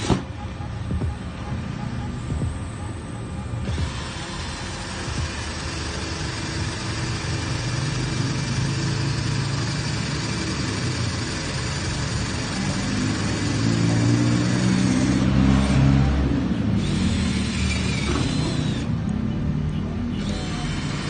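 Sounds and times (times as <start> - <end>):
angle grinder grinding steel: 3.7 - 16.2.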